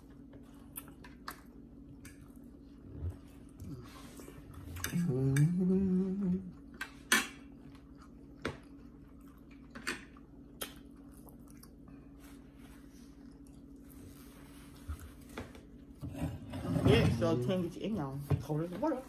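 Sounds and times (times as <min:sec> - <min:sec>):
person humming: 0:04.8 - 0:06.6.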